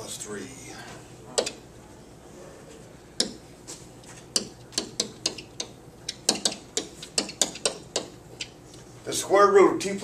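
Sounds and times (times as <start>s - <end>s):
pen tapping on whiteboard: 3.2s - 3.4s, 4.3s - 8.2s.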